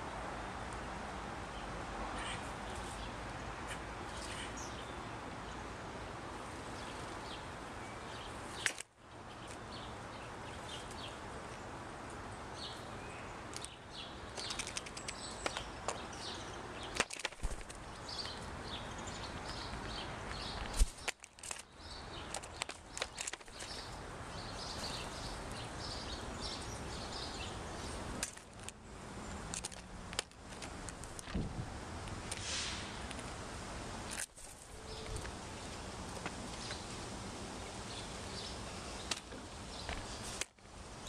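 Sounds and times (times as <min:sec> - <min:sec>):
outdoor background noise: 0:00.0 - 0:41.0
distant birdsong: 0:01.4 - 0:05.7, 0:06.3 - 0:31.3, 0:34.0 - 0:41.0.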